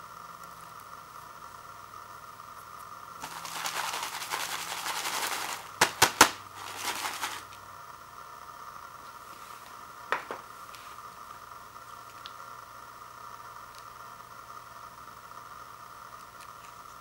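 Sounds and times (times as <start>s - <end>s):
dry noodles rattling in paper bowl: 3.2s - 7.6s.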